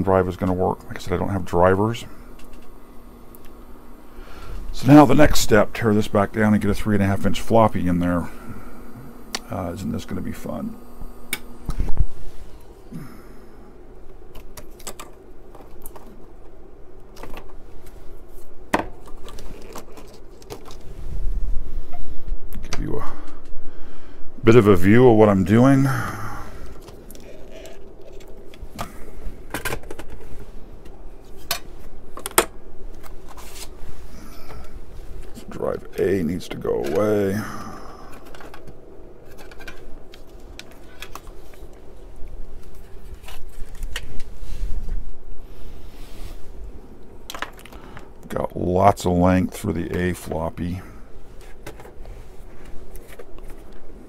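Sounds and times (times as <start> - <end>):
low steady hum: 0.0 - 54.0
hands handling computer hardware: 14.1 - 20.9, 26.6 - 35.6, 38.1 - 44.9, 51.4 - 54.0.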